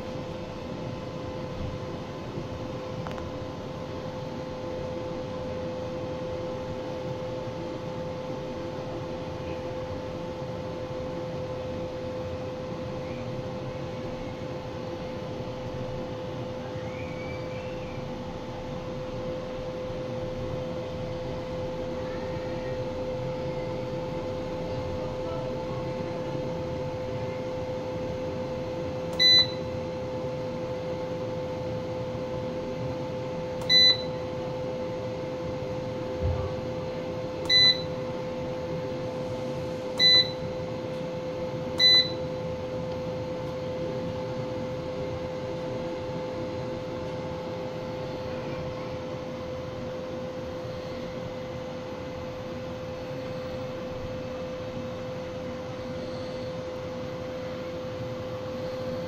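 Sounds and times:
steady hum: 0.0 - 59.0
short high keypad beeps: 29.2 - 29.6, 33.6 - 34.2, 37.5 - 37.9, 40.0 - 40.4, 41.8 - 42.2.

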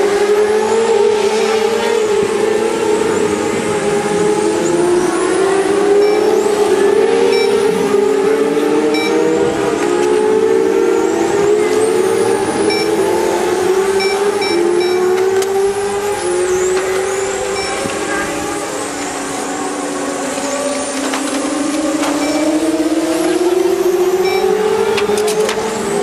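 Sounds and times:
electric racing cars whining: 0.0 - 26.0
short electronic beeps: 5.9 - 6.4, 7.2 - 7.8, 8.9 - 9.3, 12.6 - 13.1, 14.0 - 15.2, 17.5 - 18.5, 22.1 - 22.7, 24.2 - 24.8.

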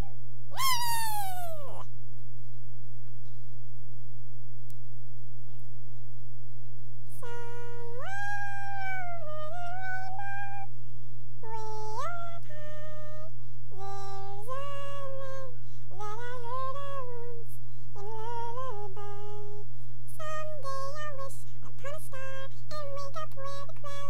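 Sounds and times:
steady low hum: 0.0 - 24.0
sped-up woman singing: 7.1 - 10.7, 11.4 - 24.0.

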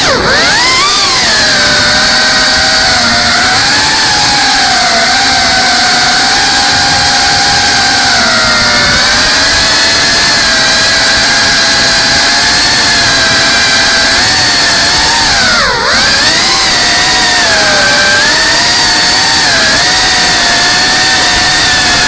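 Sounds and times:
quadcopter motors whining: 0.0 - 22.0.

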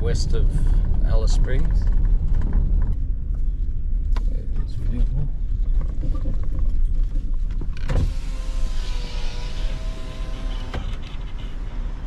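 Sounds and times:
low engine and road rumble: 0.0 - 12.0
power window motor whining: 7.8 - 12.0.

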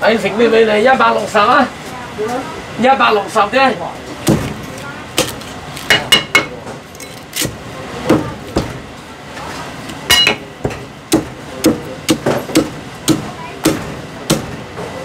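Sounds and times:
cleaver chopping on wooden block: 10.3 - 14.6.

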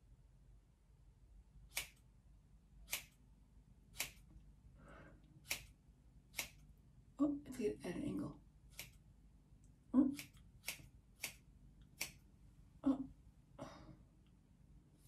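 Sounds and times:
scissors snipping hair: 1.7 - 2.1, 2.9 - 3.2, 3.9 - 4.3, 5.4 - 6.6, 8.7 - 9.0, 10.0 - 12.2.

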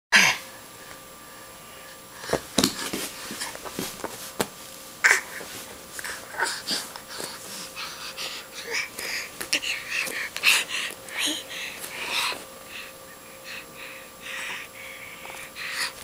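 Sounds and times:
baby wheezy grunts: 5.0 - 5.4
baby breathing hard: 5.1 - 16.0.

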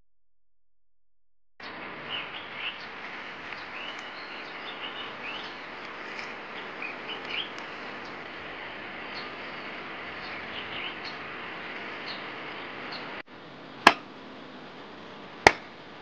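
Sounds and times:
small birds chirping: 1.6 - 13.2
steady outdoor hiss: 1.6 - 16.0.

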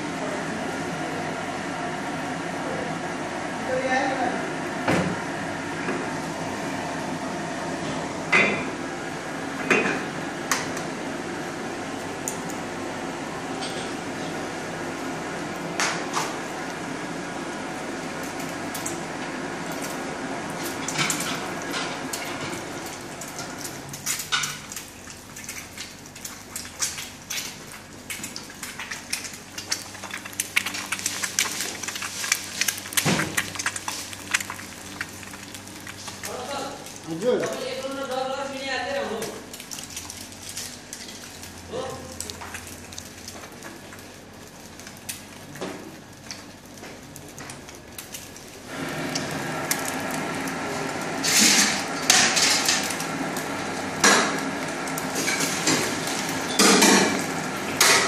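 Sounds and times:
egg sizzling in oil: 14.9 - 37.9, 39.2 - 58.0
oil crackling and popping: 14.9 - 58.0
gas burner hissing: 48.6 - 58.0.

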